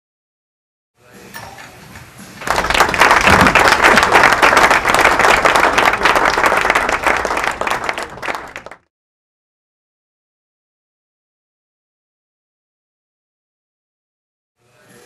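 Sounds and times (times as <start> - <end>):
group of people clapping: 2.3 - 8.9.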